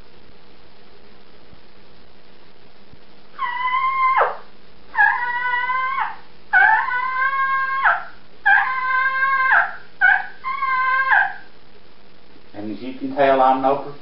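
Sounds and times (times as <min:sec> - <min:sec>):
turkey call yelping: 0:03.4 - 0:11.5.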